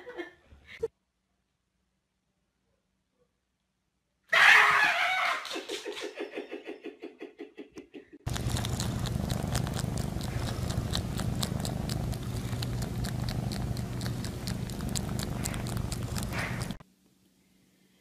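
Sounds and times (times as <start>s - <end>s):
cat purring: 8.2s - 16.8s.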